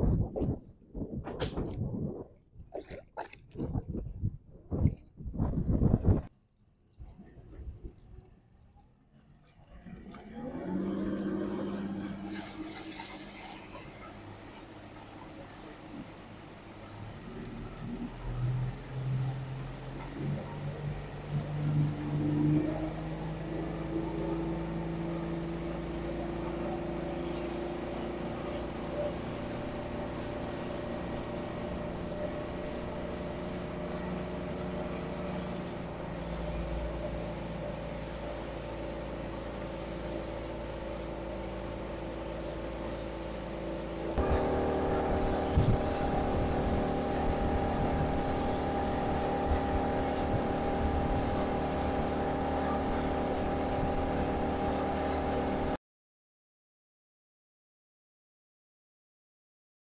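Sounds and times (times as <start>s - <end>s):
rushing water: 0.0s - 4.0s, 9.3s - 55.8s
outboard motor running: 9.5s - 55.8s.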